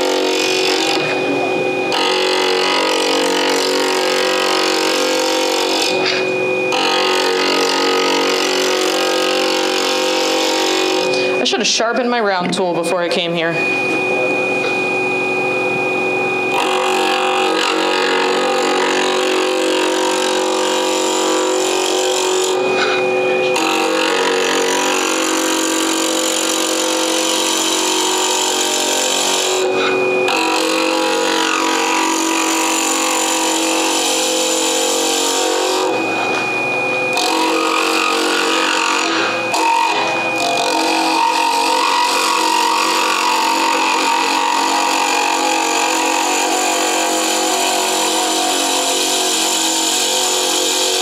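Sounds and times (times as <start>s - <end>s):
wood lathe motor humming: 0.0s - 51.0s
turning tool scraping wood: 1.9s - 11.6s, 16.5s - 35.9s, 37.1s - 51.0s.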